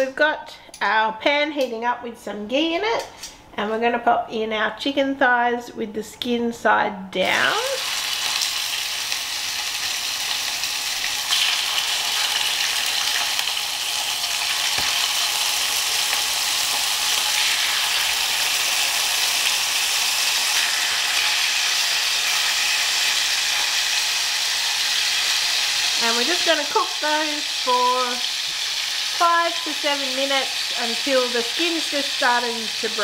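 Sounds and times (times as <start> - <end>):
chicken sizzling in a pan: 7.5 - 33.0.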